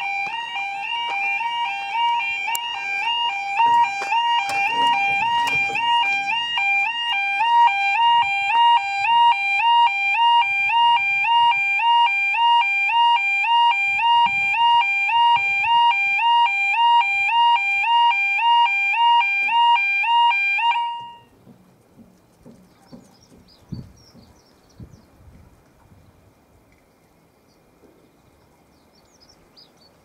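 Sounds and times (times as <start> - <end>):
level crossing alarm: 0.0 - 21.4.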